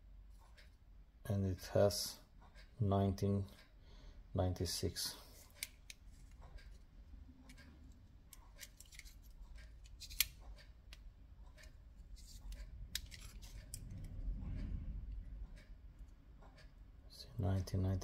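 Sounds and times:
caliper slide clicking and scraping: 0:05.3 - 0:06.7, 0:08.3 - 0:10.4, 0:12.2 - 0:14.2.

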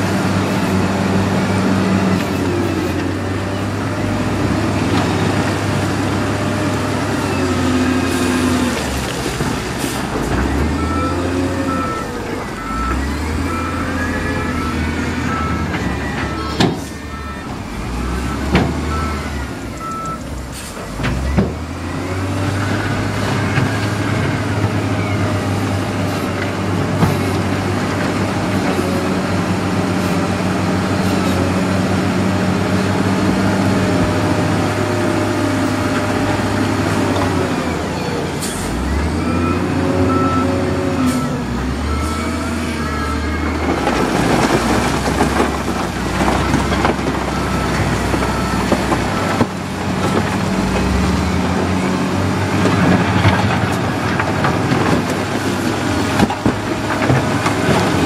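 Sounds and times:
wheel loader diesel engines revving: 0:00.0 - 0:58.0
reversing alarm beeping: 0:10.4 - 0:20.3, 0:38.0 - 0:44.4.

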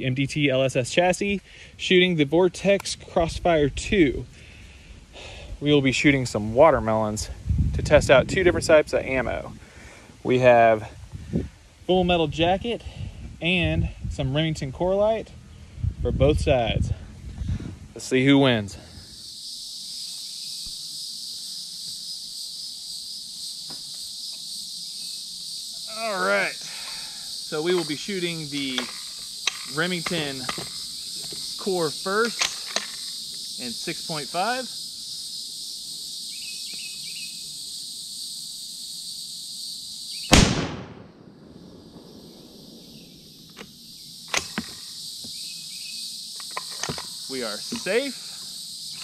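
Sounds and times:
insect chorus drone: 0:00.0 - 0:49.0
rifle shot: 0:40.3 - 0:43.2.

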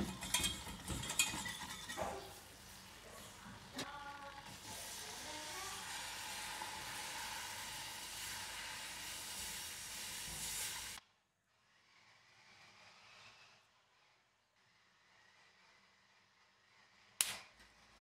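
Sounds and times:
roux sizzling in a saucepan: 0:00.0 - 0:03.5, 0:04.3 - 0:11.0.

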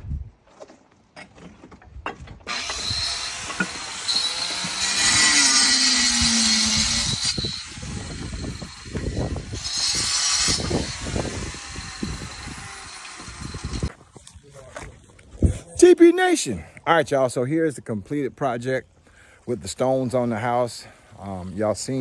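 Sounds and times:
power saw cutting stone: 0:02.5 - 0:13.9.

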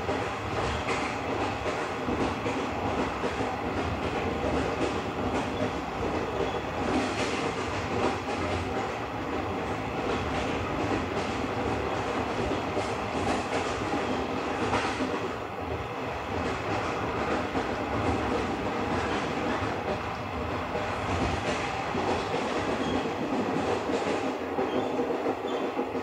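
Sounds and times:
train wheels rumbling on rails: 0:00.0 - 0:26.0.

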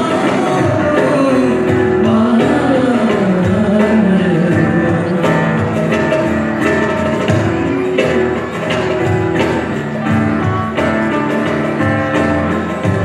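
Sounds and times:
man singing: 0:00.0 - 0:06.4
strummed acoustic guitars: 0:00.0 - 0:13.0.

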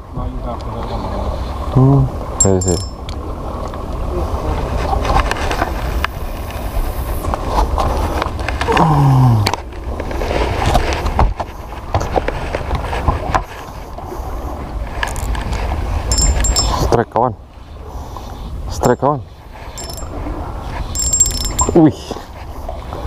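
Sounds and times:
fishing reel clicks and knocks: 0:16.1 - 0:16.8, 0:19.8 - 0:20.1, 0:21.0 - 0:21.8.

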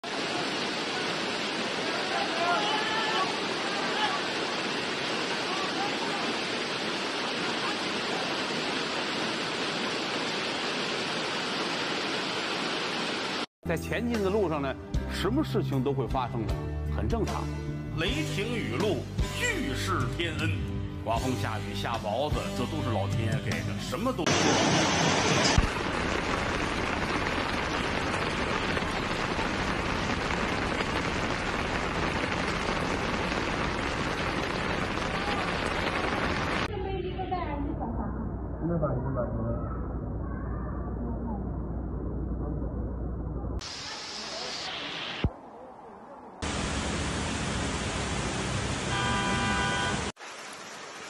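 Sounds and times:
heavy rain: 0:00.0 - 0:13.5, 0:24.2 - 0:36.8, 0:43.6 - 0:51.0
rushing water from downpour: 0:00.0 - 0:13.5, 0:23.9 - 0:36.7, 0:43.6 - 0:45.4, 0:46.4 - 0:51.0.

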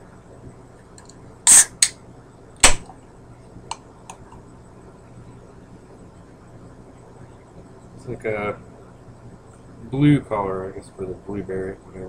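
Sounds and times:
can cracking open with hiss: 0:01.5 - 0:02.0.

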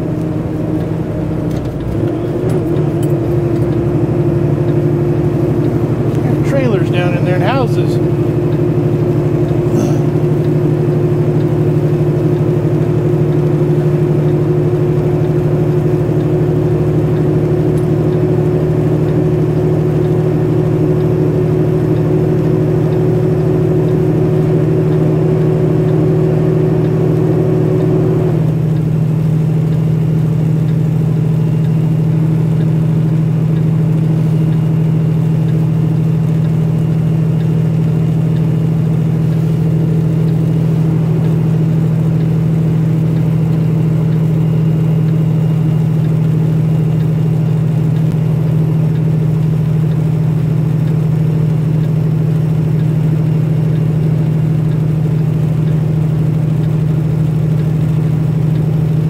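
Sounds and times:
truck diesel engine running: 0:00.0 - 0:59.0
high steady hum: 0:04.0 - 0:10.7.

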